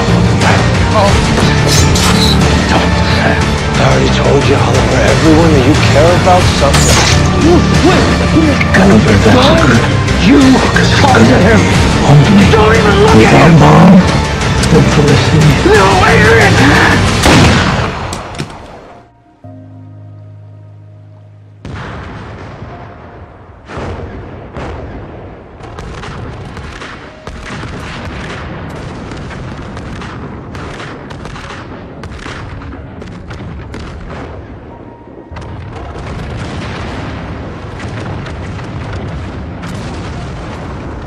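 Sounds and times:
background music: 0.0 - 30.4, 31.8 - 40.9
explosions: 16.3 - 18.7, 21.6 - 41.0.

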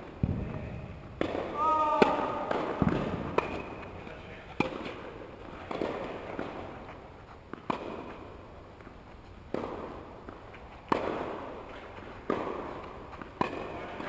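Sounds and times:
tennis balls struck and bouncing: 0.0 - 14.0.

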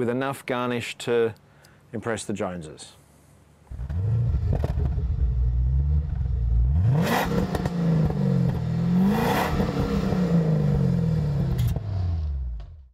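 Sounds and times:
car engine revving hard: 3.7 - 12.5.

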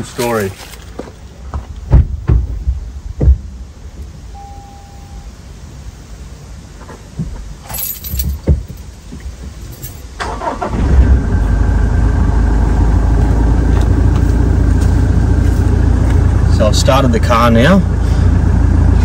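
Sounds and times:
diesel engine cranking and idling: 10.2 - 19.0.

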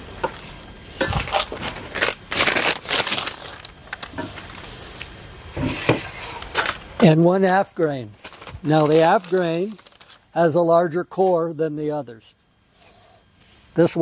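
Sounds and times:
plastic packaging crinkling: 1.1 - 4.6, 8.2 - 10.4.

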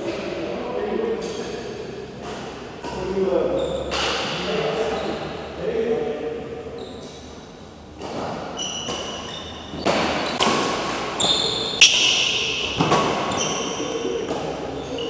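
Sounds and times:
shoes squeaking on court: 1.2 - 5.4, 6.6 - 15.0
racket striking shuttlecock: 8.0 - 13.6.

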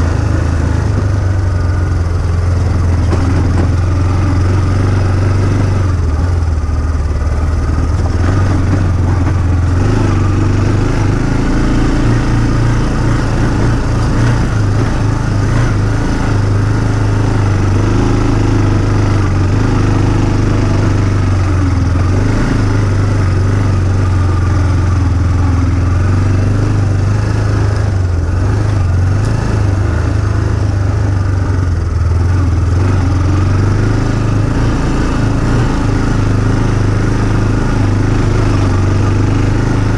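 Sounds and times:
off-road vehicle engine running: 0.0 - 39.9.

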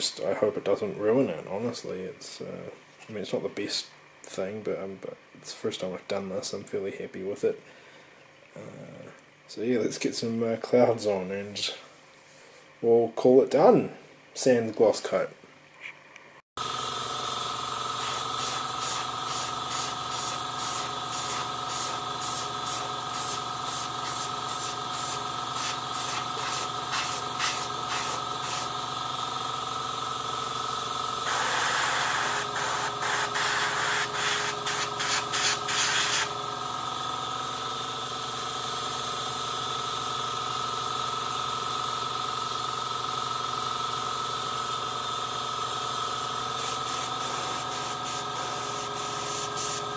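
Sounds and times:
air compressor hissing and humming: 16.6 - 49.9
airbrush spraying bursts: 17.9 - 28.9, 31.3 - 36.4, 46.5 - 49.9.

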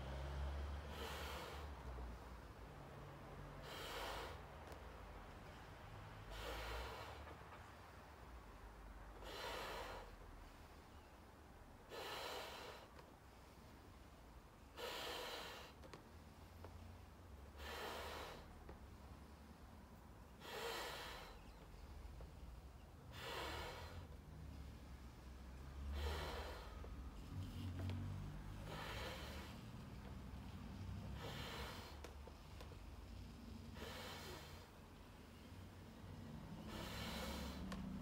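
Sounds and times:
sharp breaths through nose: 0.8 - 1.8, 3.5 - 4.8, 6.2 - 7.4, 17.5 - 19.5, 20.3 - 22.4, 23.0 - 38.0
sharp intake of breath: 25.8 - 26.8, 36.2 - 37.7.

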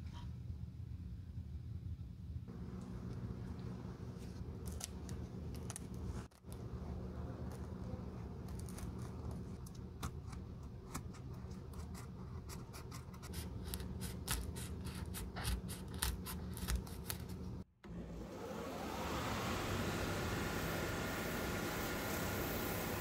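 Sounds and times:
blade scraping cork: 10.1 - 17.4
belt sander motor whine: 17.9 - 23.0.

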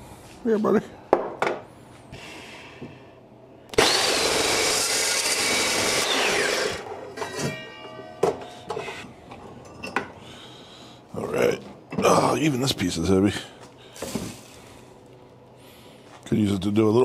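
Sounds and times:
miter saw cutting steel tubing: 3.7 - 7.4
saw spinning down whine: 3.8 - 7.1.

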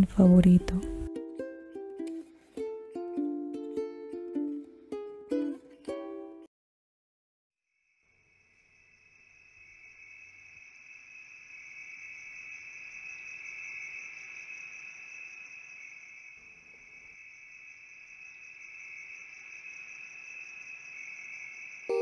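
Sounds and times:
crickets trilling: 7.8 - 22.0.

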